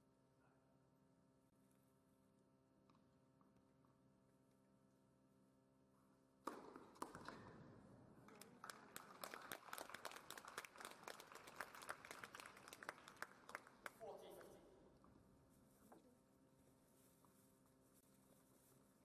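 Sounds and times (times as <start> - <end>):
spectators applauding: 8.3 - 14.0.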